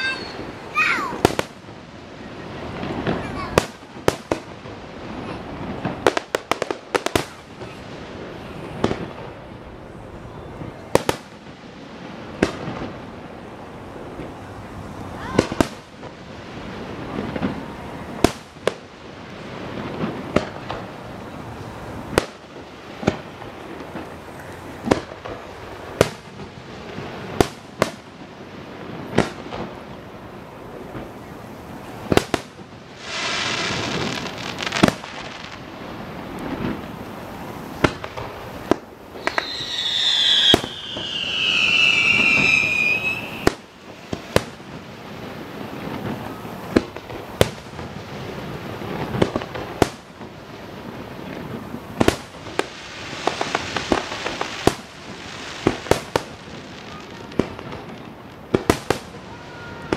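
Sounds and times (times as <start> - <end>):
falling whistle: 0.0 - 0.5, 39.2 - 43.5
firework hissing: 0.0 - 59.9.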